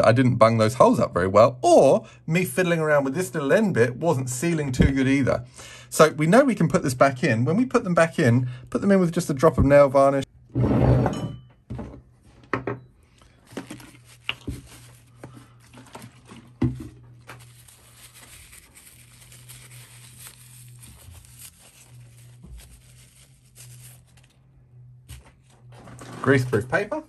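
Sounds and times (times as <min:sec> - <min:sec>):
paper crumpling and rustling: 0:13.2 - 0:24.5.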